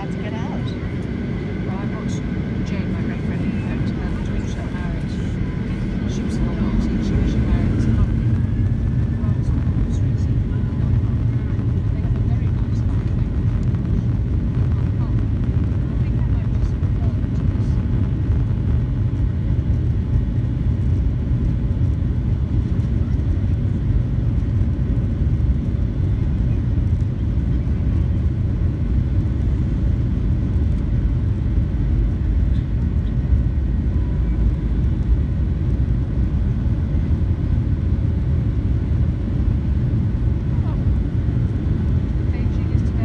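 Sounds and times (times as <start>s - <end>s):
aircraft wheels rolling: 0.0s - 43.0s
jet engines idling: 0.0s - 43.0s.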